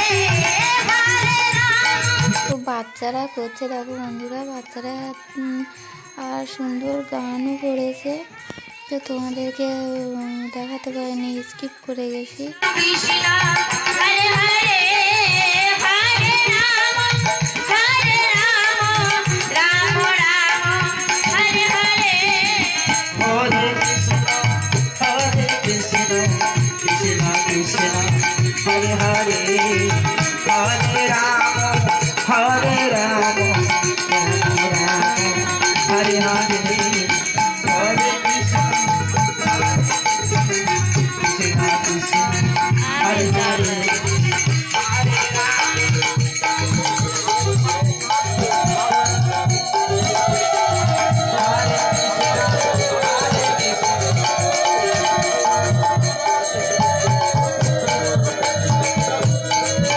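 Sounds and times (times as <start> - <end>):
harmonium: 0.0 - 59.9
jangling percussion: 0.0 - 59.9
fast hand-drum beat: 12.4 - 59.9.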